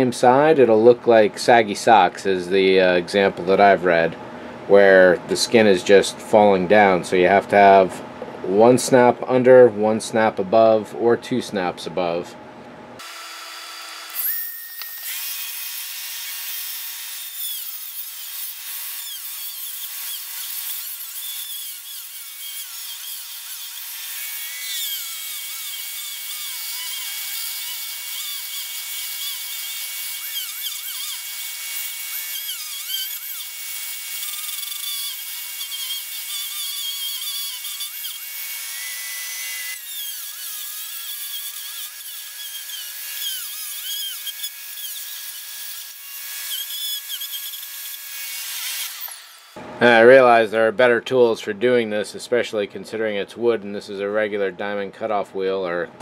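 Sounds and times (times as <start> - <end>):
rotary tool cutting wood: 13.0 - 49.6.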